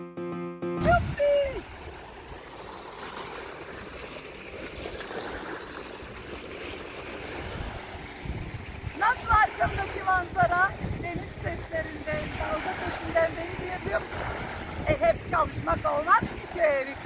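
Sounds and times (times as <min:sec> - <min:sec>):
brief pitched sound: 0:00.0 - 0:01.6
music jingle: 0:00.0 - 0:01.6
sea waves on sandy beach: 0:00.8 - 0:17.0.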